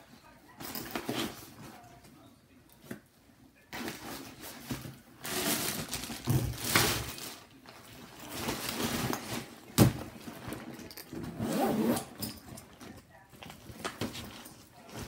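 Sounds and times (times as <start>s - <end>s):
plastic bag rustling and crinkling: 3.7s - 12.0s.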